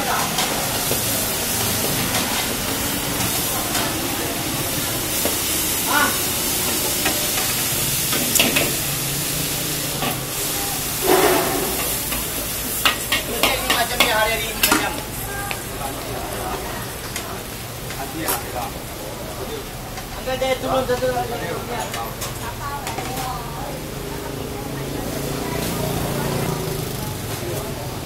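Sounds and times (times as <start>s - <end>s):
food sizzling in a wok: 0.0s - 28.0s
metal ladle scraping and clanking: 11.0s - 12.1s.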